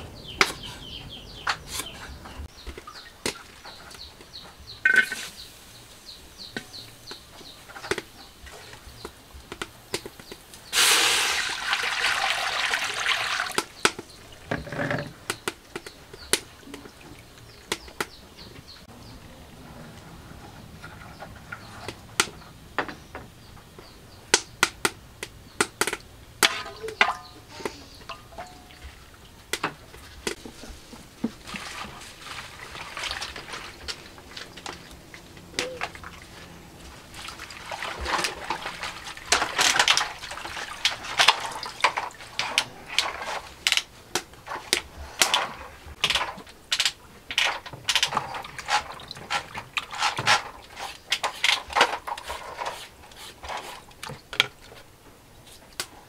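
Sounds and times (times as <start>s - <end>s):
water splashing in a basin: 10.7s - 18.1s, 31.1s - 52.7s.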